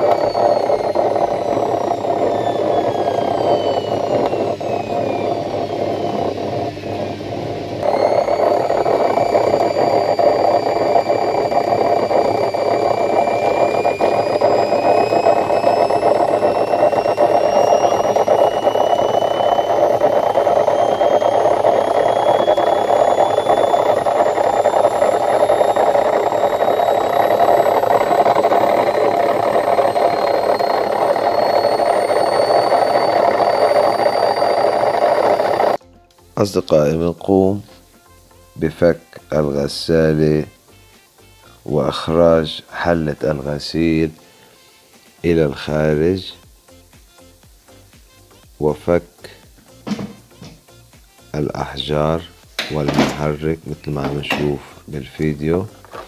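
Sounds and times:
washing machine drum spinning: 0.0s - 35.8s, 52.4s - 54.7s.

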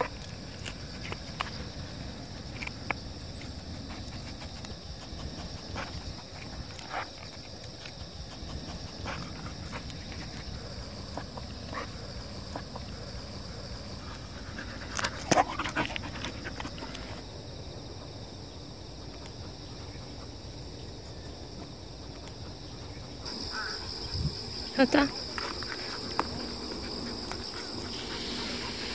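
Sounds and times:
high drone of insects: 0.0s - 28.9s
dog panting: 3.7s - 17.2s, 22.0s - 28.9s.

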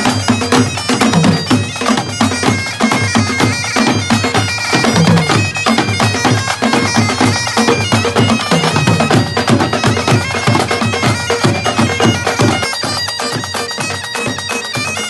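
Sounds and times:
bagpipes playing over drones: 0.0s - 15.0s
snare and tenor drums beating: 0.0s - 15.0s.

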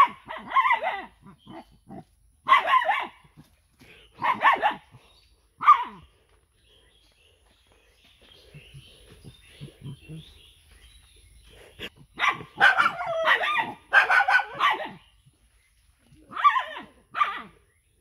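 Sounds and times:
dog barking: 0.0s - 3.4s, 4.2s - 5.0s, 5.6s - 6.1s, 12.2s - 15.0s, 16.3s - 17.6s.

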